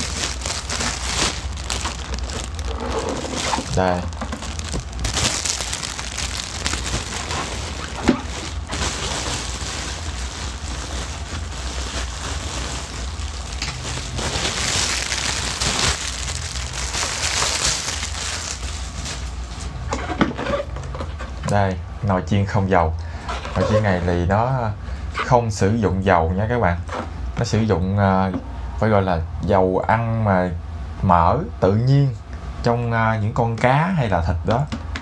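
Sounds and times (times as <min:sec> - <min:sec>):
packaging crinkling: 0:00.0 - 0:19.7.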